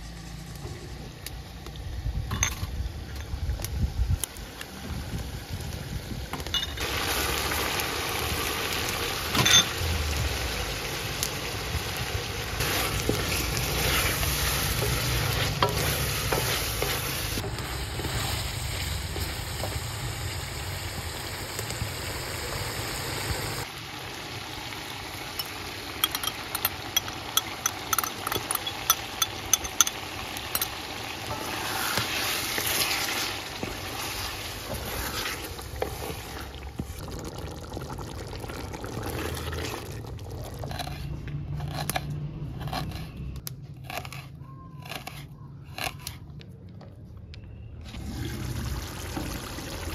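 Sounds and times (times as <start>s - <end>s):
chicken sizzling in pan: 6.8s - 27.7s, 29.1s - 36.5s
spatula knocking and scraping pan: 12.6s - 18.2s.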